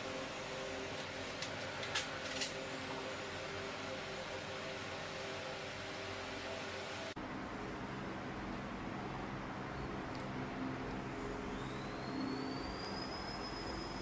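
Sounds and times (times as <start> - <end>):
dental equipment humming: 0.0 - 7.2, 10.5 - 14.0
high wavering whine: 0.0 - 7.9, 10.3 - 14.0.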